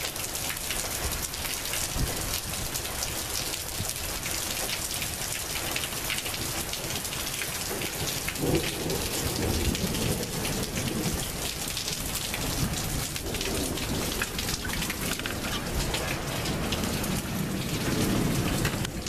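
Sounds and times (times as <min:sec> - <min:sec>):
heavy rain pouring: 0:00.0 - 0:19.0
low rumble of thunder: 0:07.7 - 0:19.0.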